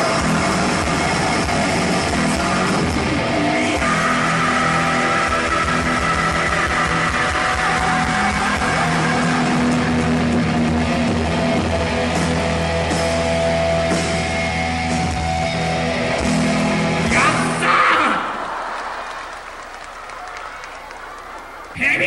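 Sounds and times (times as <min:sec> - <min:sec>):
distorted electric guitars: 0:00.0 - 0:18.3.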